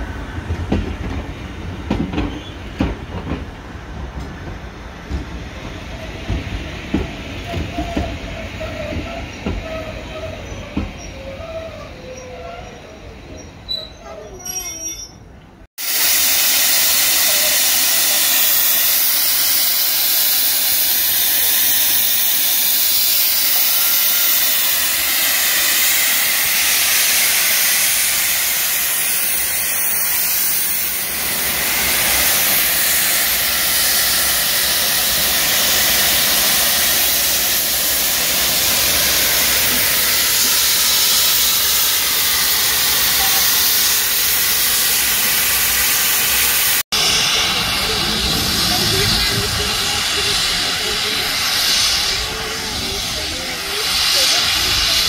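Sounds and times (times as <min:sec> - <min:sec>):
steam hissing from safety valves: 0:15.8 - 0:55.0.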